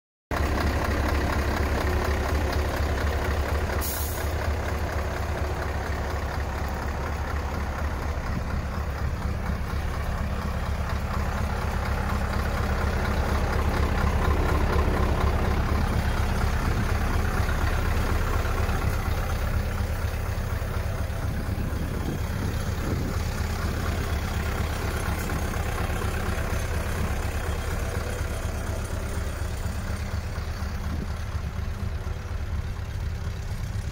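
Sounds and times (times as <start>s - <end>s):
diesel truck engine idling: 0.3s - 33.9s
brief hiss: 3.8s - 4.4s.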